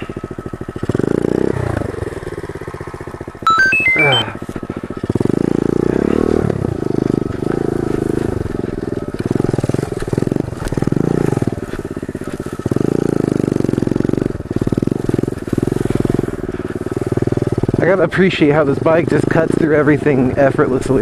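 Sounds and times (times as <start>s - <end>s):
motorbike engine revving: 0.0s - 3.4s, 4.4s - 21.0s.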